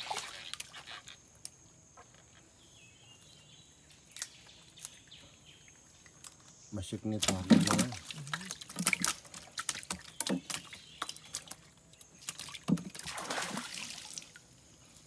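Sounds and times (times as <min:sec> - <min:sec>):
fishing net knocks and clatter: 0:07.2 - 0:13.7
water splash: 0:07.2 - 0:14.4.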